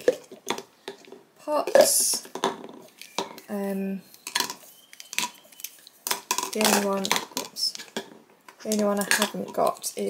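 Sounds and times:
pens clicking into plastic cups: 0:04.1 - 0:10.0.

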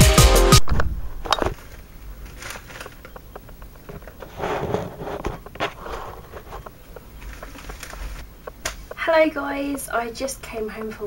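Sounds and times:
rustling: 0:00.6 - 0:09.1.

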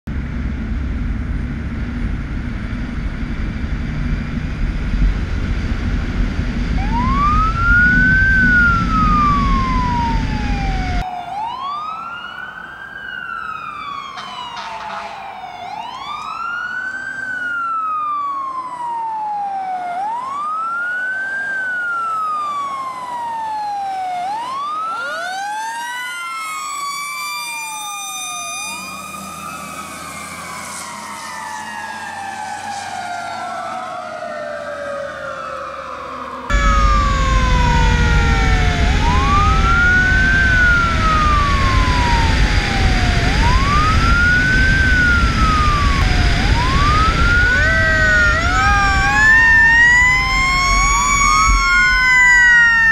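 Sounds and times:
heavy low rumble: 0:00.1 - 0:11.0, 0:36.5 - 0:52.1
fire truck siren wailing: 0:00.1 - 0:52.9
higher-pitched siren: 0:00.3 - 0:52.9.

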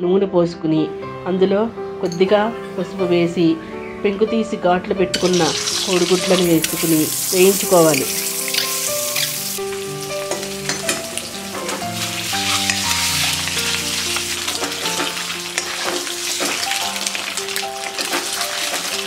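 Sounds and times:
instrumental music: 0:00.7 - 0:19.0
eggs sizzling in hot oil: 0:05.2 - 0:19.0.

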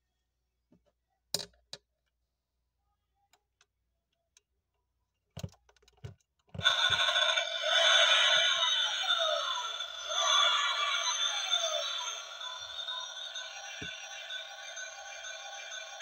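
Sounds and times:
electronic sound effect from toy: 0:06.6 - 0:16.0.

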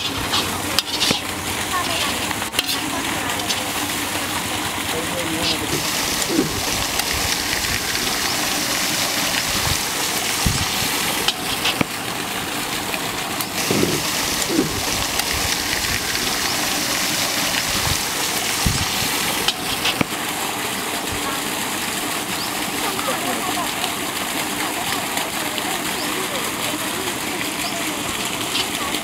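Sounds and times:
food sizzling in oil: 0:00.0 - 0:04.7, 0:05.3 - 0:12.0, 0:13.4 - 0:20.2.

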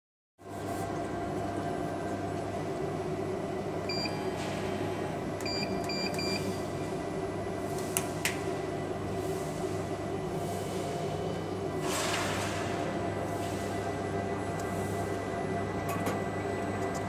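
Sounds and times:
laser cutting machine humming: 0:00.7 - 0:17.0
short electronic beeps: 0:05.5 - 0:06.5.

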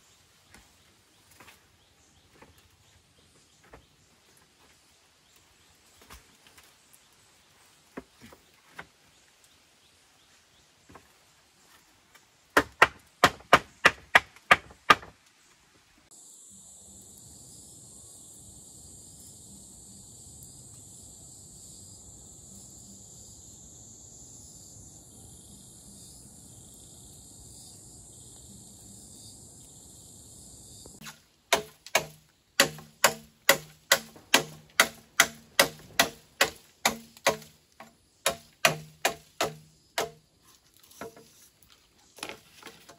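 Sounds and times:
knife chopping bamboo: 0:12.6 - 0:15.1, 0:31.0 - 0:40.2, 0:40.9 - 0:41.3
high insect drone: 0:16.1 - 0:42.9.

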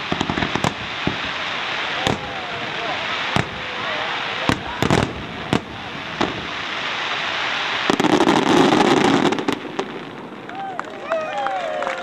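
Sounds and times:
fireworks crackling hiss: 0:00.0 - 0:11.7
fireworks bangs: 0:00.0 - 0:11.9.

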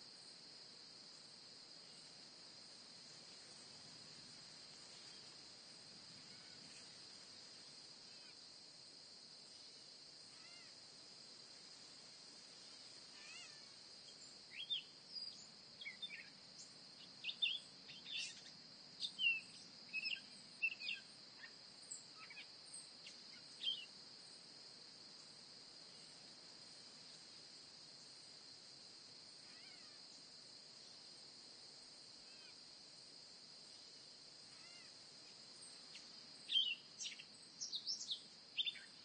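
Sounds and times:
faint high insect trill: 0:00.0 - 0:39.0
songbirds chirping and whistling: 0:14.5 - 0:23.9, 0:36.4 - 0:39.0.

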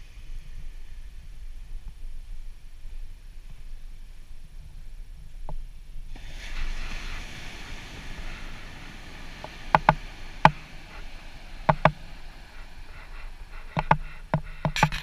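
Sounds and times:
ocean surf hissing: 0:06.1 - 0:15.0.

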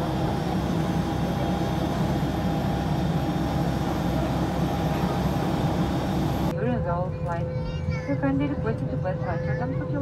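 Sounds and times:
low rumble of aircraft: 0:00.0 - 0:10.0.

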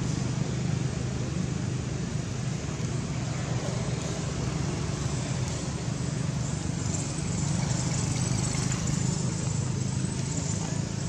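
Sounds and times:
low outdoor background rumble: 0:00.0 - 0:11.0.

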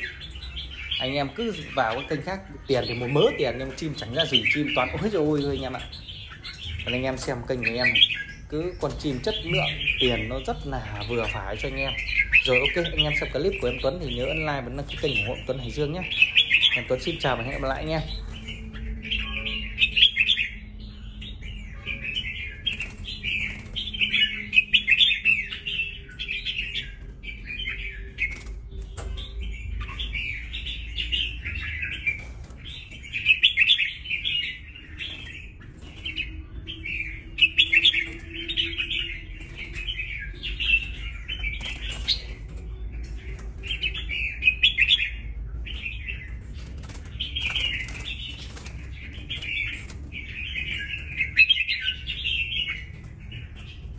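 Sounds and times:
bird singing chirpy phrases: 0:00.0 - 0:53.9.

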